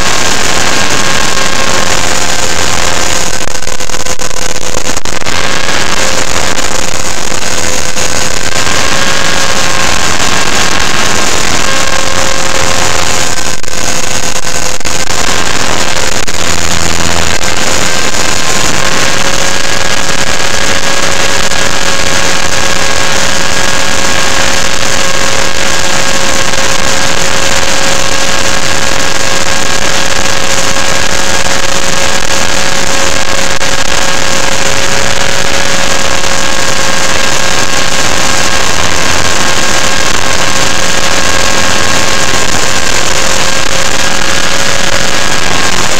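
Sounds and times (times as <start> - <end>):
electric motor whine: 0.0 - 45.9
rotor wash rushing: 5.1 - 14.0.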